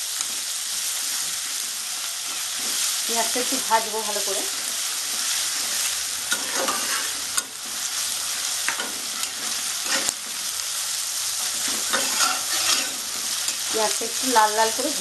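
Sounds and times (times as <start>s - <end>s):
onions sizzling in a pan: 0.0s - 15.0s
spatula scraping a pan: 4.5s - 10.6s, 11.4s - 13.8s.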